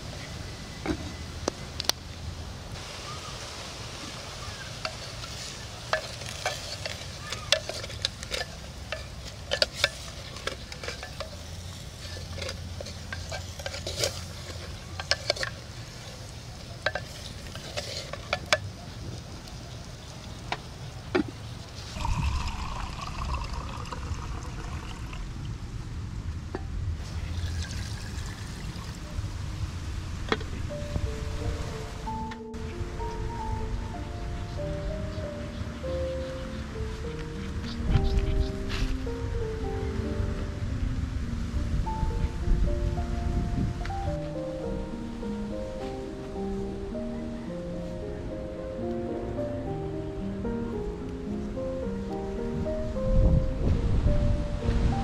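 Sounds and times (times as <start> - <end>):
simmering hiss: 0.0 - 26.2
water pouring into pot: 22.0 - 25.3, 27.0 - 29.0.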